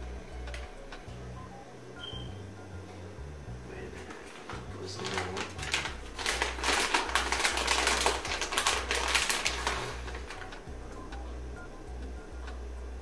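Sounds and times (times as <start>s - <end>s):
plastic bag crinkling: 4.0s - 10.6s.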